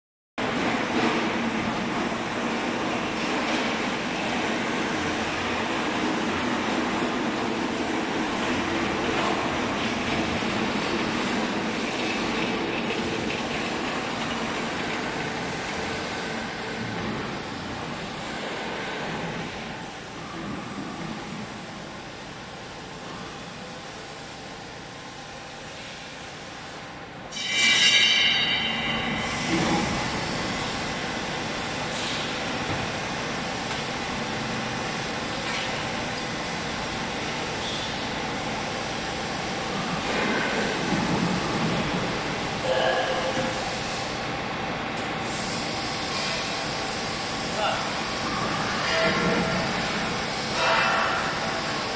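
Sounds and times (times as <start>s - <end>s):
factory machinery humming: 0.4s - 51.9s
high-pitched machine squeal: 27.3s - 29.6s, 48.4s - 49.8s.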